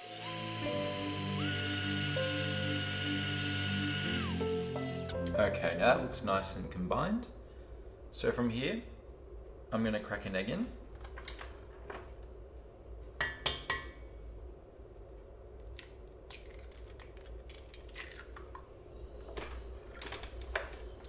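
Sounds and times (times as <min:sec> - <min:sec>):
egg cracking on bowl rim: 0:15.7 - 0:18.6.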